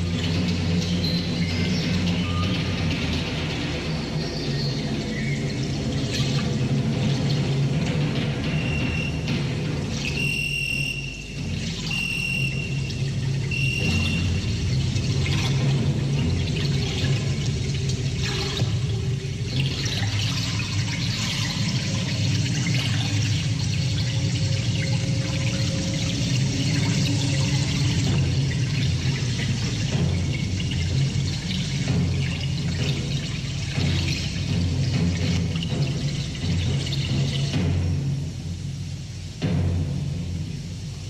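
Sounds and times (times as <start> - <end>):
high whistle-like tone: 10.1 - 14.4.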